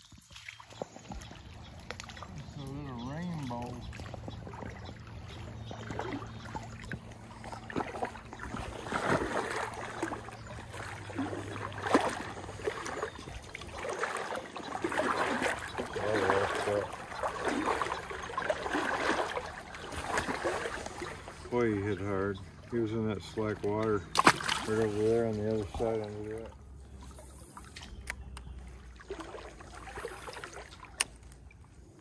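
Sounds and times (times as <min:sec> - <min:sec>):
stream water rushing and splashing: 0:00.0 - 0:31.3
fish splashing at the surface: 0:05.7 - 0:21.5, 0:24.1 - 0:25.8, 0:28.8 - 0:31.2.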